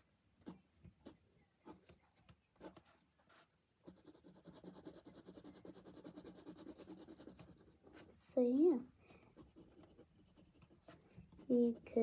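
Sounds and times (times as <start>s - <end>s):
drawing tool scratching paper: 2.6s - 8.1s, 9.3s - 12.0s
rapid scribbling on paper: 2.6s - 8.1s, 9.3s - 12.0s.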